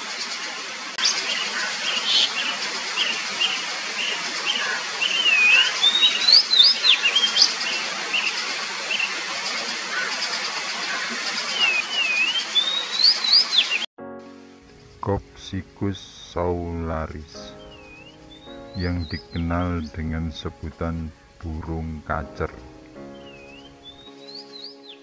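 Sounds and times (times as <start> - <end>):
bird singing whistled notes: 1.0 - 8.3, 11.6 - 13.9, 17.4 - 20.2, 23.1 - 25.0
looping whistles: 1.0 - 9.1, 11.5 - 13.9
background hiss: 14.6 - 23.7.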